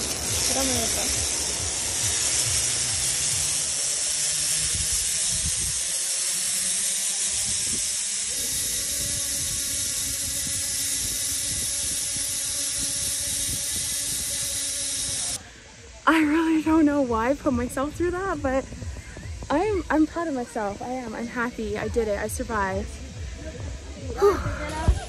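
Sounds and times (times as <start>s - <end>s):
pulleys running along cable: 0.0s - 15.4s
wind buffeting microphone: 4.4s - 5.9s, 7.3s - 15.5s, 16.6s - 25.0s.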